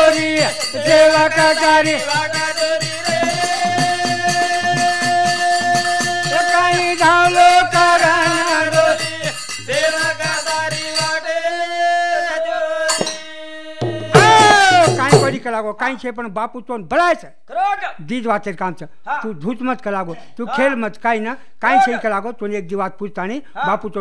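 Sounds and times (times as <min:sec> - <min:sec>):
steady drum beat: 0:00.0 - 0:11.2, 0:13.8 - 0:15.4.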